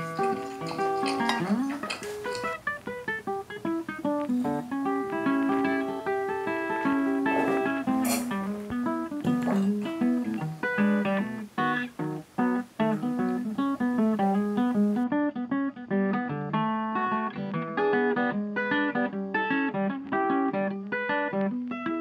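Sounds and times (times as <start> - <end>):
acoustic guitar picking melody: 0.0 - 22.0.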